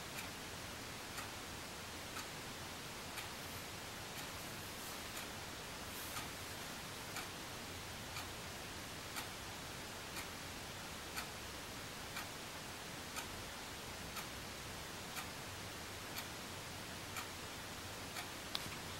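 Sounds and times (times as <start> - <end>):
faint room tone hiss: 0.0 - 18.9
clock ticking: 2.1 - 2.4, 4.2 - 4.4, 7.0 - 7.4, 8.1 - 8.6, 9.2 - 9.4, 10.0 - 10.5, 11.1 - 11.4, 12.1 - 12.4, 15.2 - 15.4, 17.2 - 17.4.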